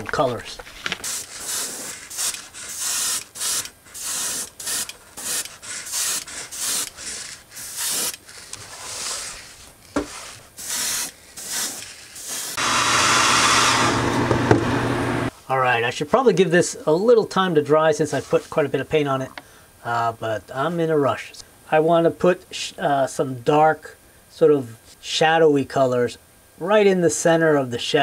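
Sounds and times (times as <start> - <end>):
airbrush spraying hissing bursts: 1.0 - 13.9
whooshing noise with motor hum: 12.6 - 15.3.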